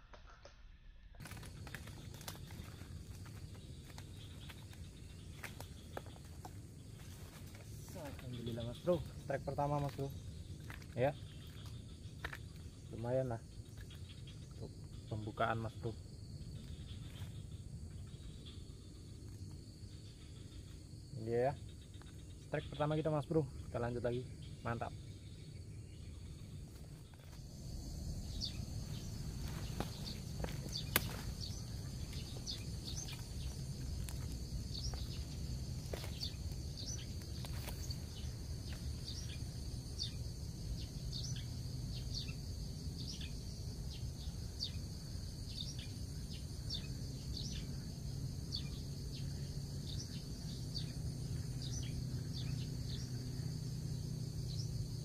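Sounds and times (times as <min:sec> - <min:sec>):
high insect drone: 0:01.2 - 0:55.0
low rumble: 0:25.0 - 0:40.8.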